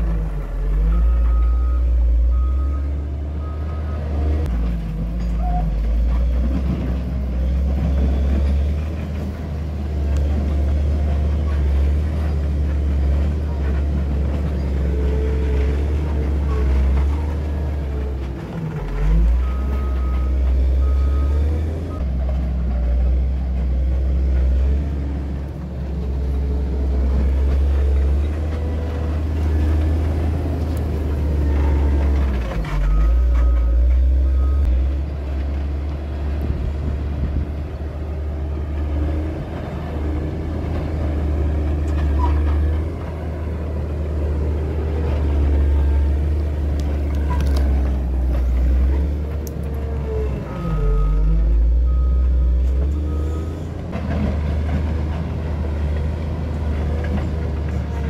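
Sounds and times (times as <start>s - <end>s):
diesel engine running: 0.0s - 58.0s
reversing alarm beeps: 0.9s - 4.2s, 50.5s - 53.6s.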